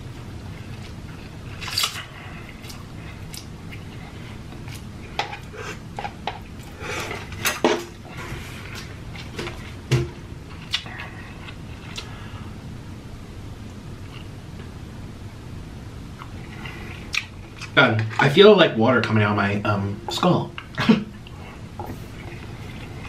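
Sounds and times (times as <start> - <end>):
wet chewing: 10.5 - 12.2.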